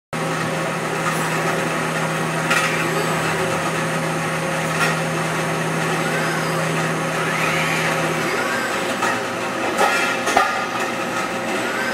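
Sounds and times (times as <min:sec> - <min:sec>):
steady machine hum: 0:00.2 - 0:11.9
servo whines: 0:02.4 - 0:11.9.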